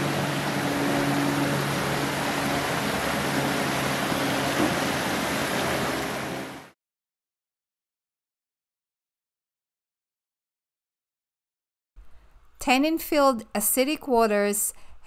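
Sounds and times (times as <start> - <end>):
water rushing over rocks: 0.0 - 6.7.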